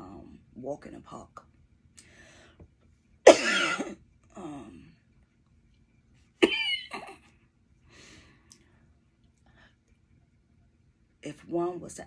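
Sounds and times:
woman coughing harshly: 0:03.3 - 0:04.0, 0:06.4 - 0:07.2.

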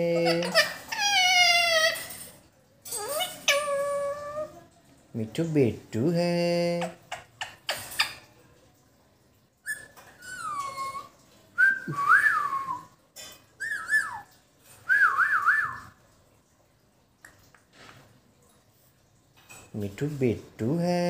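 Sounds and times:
person whistling: 0:11.6 - 0:12.8.

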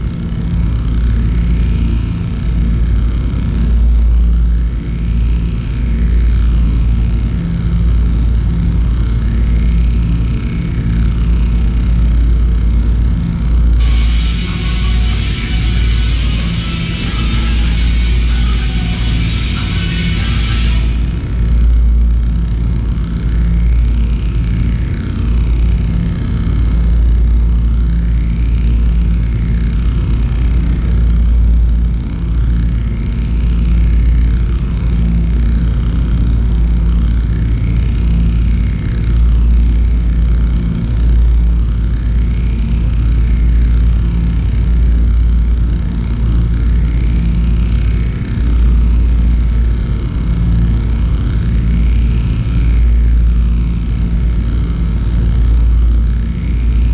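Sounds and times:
deep rumbling drone: 0:00.0 - 0:56.9
high sweeping electronic tones: 0:13.8 - 0:22.0.

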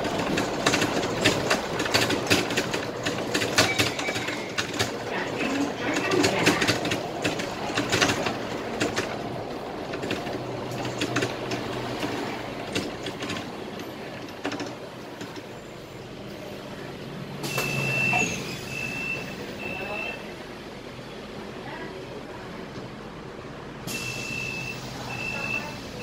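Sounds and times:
bodywork rattles and clicks: 0:00.0 - 0:15.5
bus engine hum: 0:00.0 - 0:26.0.

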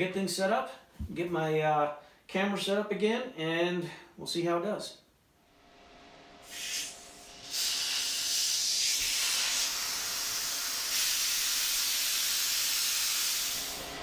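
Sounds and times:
high-pressure air hissing from valve: 0:06.4 - 0:14.0.

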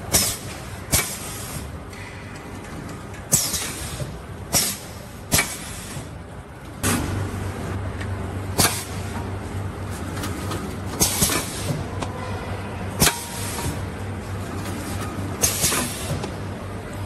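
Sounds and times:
machine running noise: 0:00.0 - 0:17.0
steady low hum: 0:00.0 - 0:17.0
pneumatic air bursts: 0:00.1 - 0:01.7, 0:03.3 - 0:06.1, 0:08.6 - 0:09.0, 0:10.9 - 0:11.8, 0:13.0 - 0:13.9, 0:15.4 - 0:16.3.

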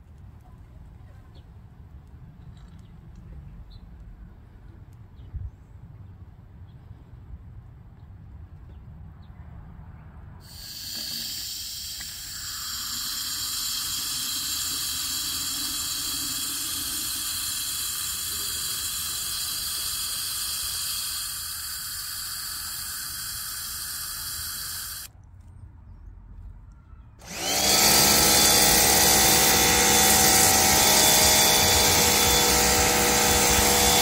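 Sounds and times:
hose spraying water into bottle: 0:10.4 - 0:25.1, 0:27.2 - 0:34.0.

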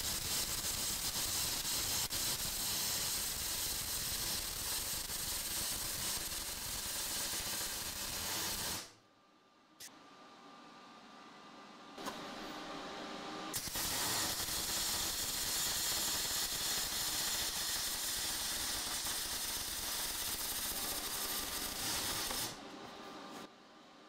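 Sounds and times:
welding arc crackling: 0:00.0 - 0:09.0, 0:13.6 - 0:22.6.

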